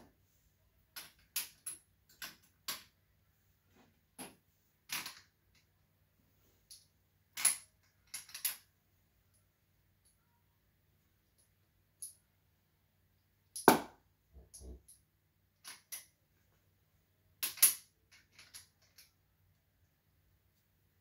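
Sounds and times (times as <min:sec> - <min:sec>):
small plastic parts clicking: 0:17.4 - 0:19.1.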